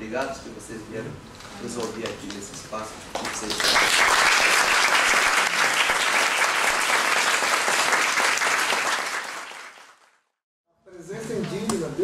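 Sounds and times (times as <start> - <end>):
audience applauding: 3.2 - 10.2.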